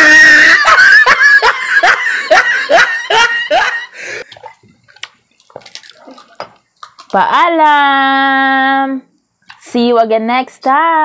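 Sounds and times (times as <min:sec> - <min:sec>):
rhythmic laughter: 0:00.4 - 0:04.0.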